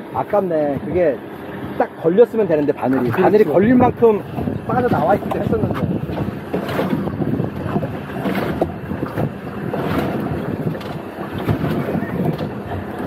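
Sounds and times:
water lapping against boat hull: 0.0s - 13.0s
wind buffeting microphone: 0.0s - 13.0s.

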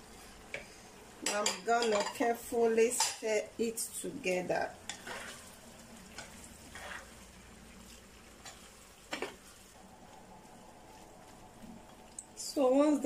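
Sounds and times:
vegetables frying in a pan: 0.0s - 13.0s
plastic spoon scraping a pan: 4.9s - 5.5s, 6.2s - 7.2s.

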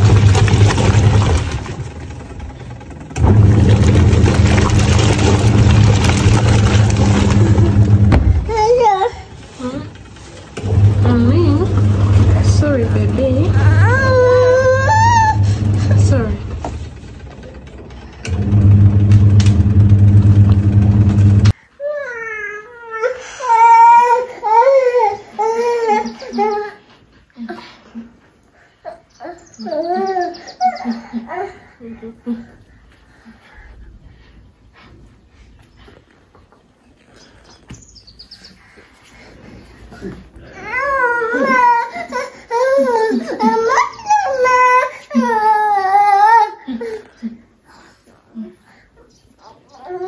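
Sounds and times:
washing machine churning clothes: 0.0s - 21.6s, 38.8s - 46.8s
toddler crying: 13.6s - 15.5s, 21.8s - 26.9s, 28.8s - 31.6s, 40.4s - 47.0s, 49.4s - 50.0s.

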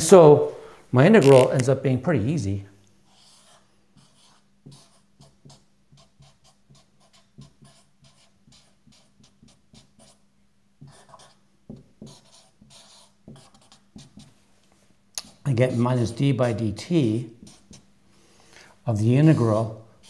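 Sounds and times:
marker squeaking on whiteboard: 1.2s - 1.7s, 3.1s - 10.2s, 10.8s - 14.3s, 17.4s - 17.9s.

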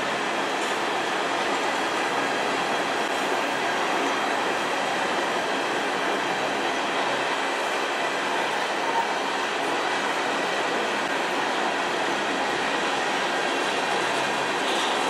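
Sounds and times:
freight train rolling past: 0.0s - 15.0s.

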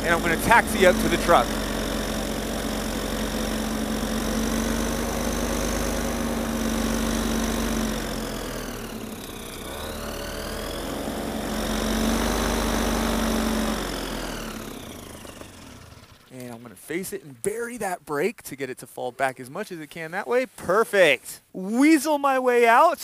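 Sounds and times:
paramotor engine and propeller: 0.0s - 16.4s.

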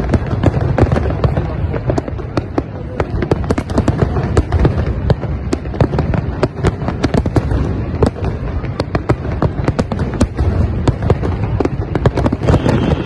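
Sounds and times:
fireworks bangs and cracks: 0.0s - 13.0s.

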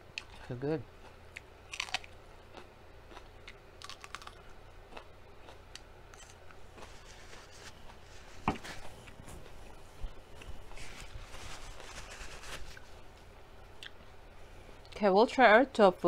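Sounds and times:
crisp chewing crunches: 1.0s - 9.7s.

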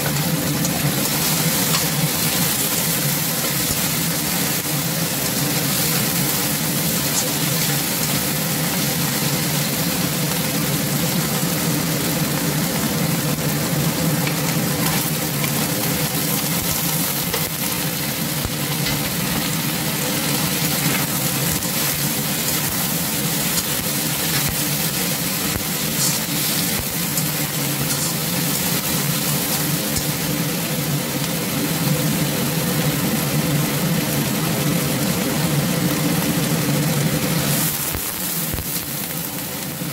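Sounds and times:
food sizzling in a wok: 0.0s - 39.9s
metal spatula scraping: 20.6s - 30.3s.

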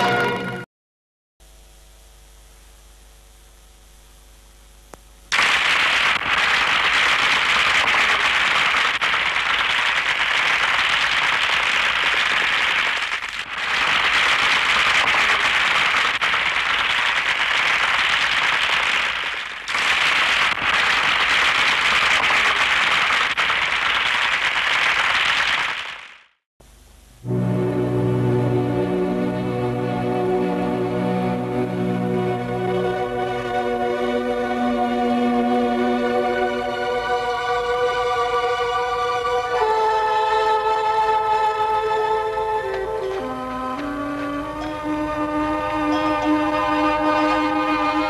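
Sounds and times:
faint hum: 1.4s - 23.9s, 26.6s - 48.0s
audience applauding: 5.3s - 26.3s.

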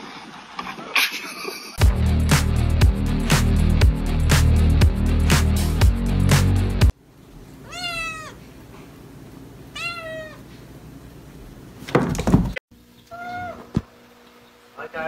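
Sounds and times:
cat meowing: 7.6s - 8.4s, 9.7s - 10.5s, 13.1s - 13.7s.

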